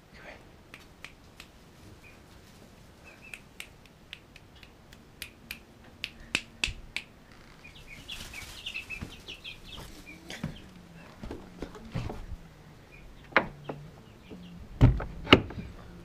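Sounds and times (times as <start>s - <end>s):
chicks peeping: 2.0s - 4.8s, 6.1s - 14.7s.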